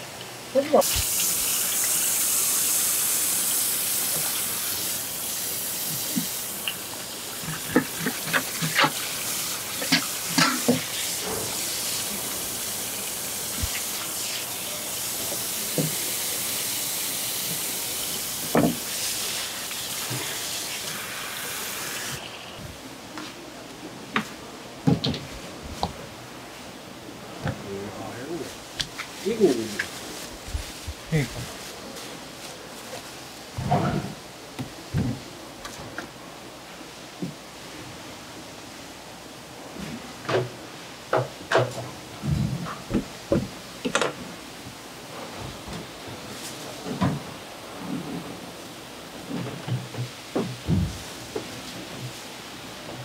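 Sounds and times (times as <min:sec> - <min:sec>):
tap water running: 0:00.0 - 0:22.7.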